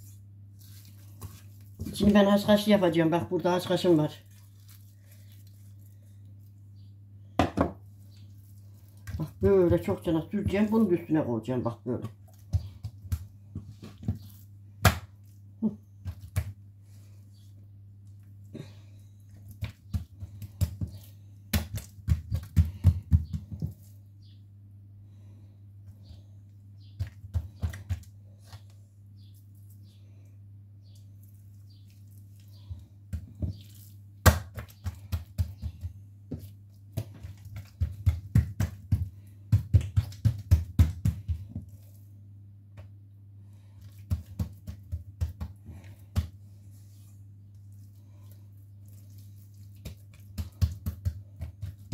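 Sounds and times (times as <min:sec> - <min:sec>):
hands patting dough on tiles: 0:00.0 - 0:11.1, 0:11.7 - 0:24.2, 0:25.8 - 0:30.2, 0:30.9 - 0:51.9
low steady hum: 0:00.0 - 0:51.9
knock on countertop: 0:07.4 - 0:07.8.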